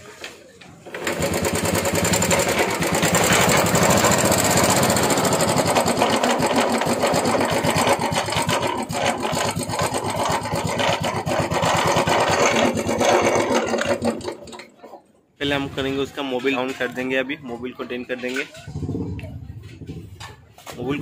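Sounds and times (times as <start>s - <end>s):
motorcycle engine clattering: 1.0s - 14.8s.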